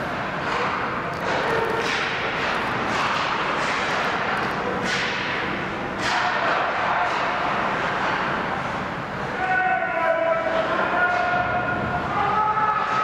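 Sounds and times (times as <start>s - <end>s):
arena noise: 0.0s - 13.0s
hockey sticks and puck clacking: 0.1s - 9.6s, 10.4s - 13.0s
skates scraping ice: 0.4s - 5.4s.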